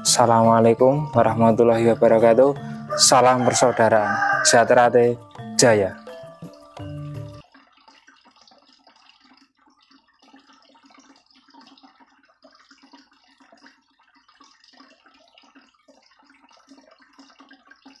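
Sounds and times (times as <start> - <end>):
faint trickling water: 0.0 - 18.0.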